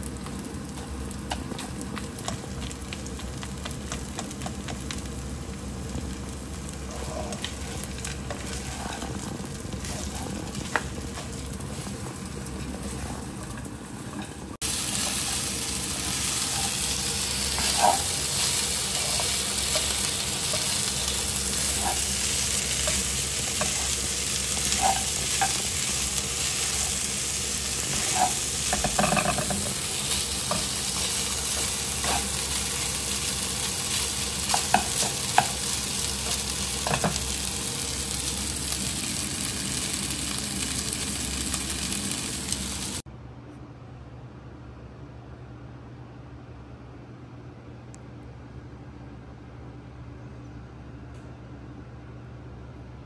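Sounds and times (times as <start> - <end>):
rice sizzling in a frying pan: 0.0 - 43.1
tongs scraping and clicking on pan: 16.0 - 27.0, 27.8 - 37.4.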